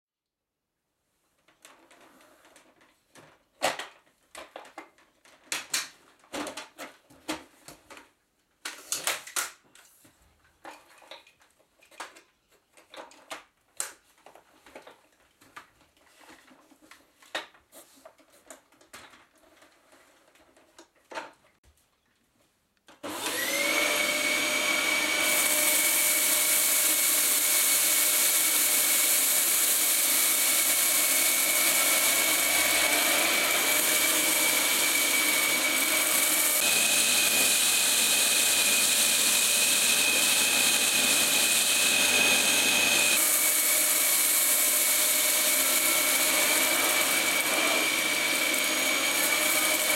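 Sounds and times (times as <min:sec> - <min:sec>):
vacuum cleaner motor whining: 0:23.0 - 0:49.9.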